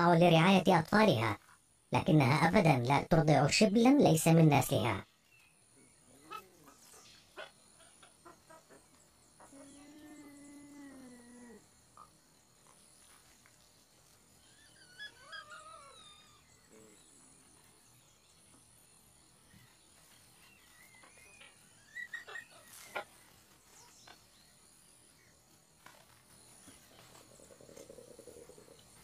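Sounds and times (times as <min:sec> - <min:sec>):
hyenas whining: 0:06.1 - 0:08.7, 0:14.4 - 0:17.0.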